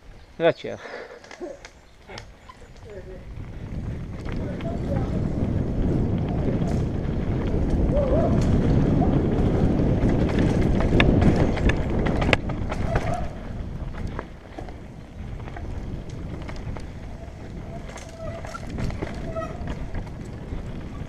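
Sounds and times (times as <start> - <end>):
tyres on loose dirt: 0.8 - 21.0
bike rattling and knocking: 1.2 - 21.0
wind on microphone: 1.4 - 21.0.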